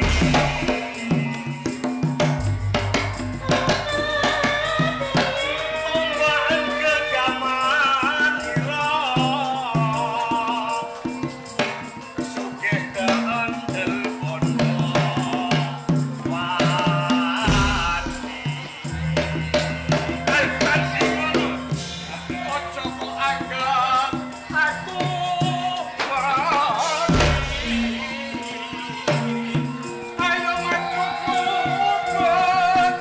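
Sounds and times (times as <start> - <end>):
gamelan tones: 0.0 - 33.0
person singing: 0.0 - 33.0.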